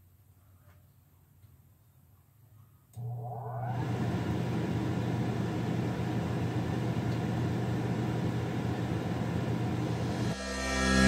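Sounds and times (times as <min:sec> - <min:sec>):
air conditioner fan rushing air: 0:03.0 - 0:10.4.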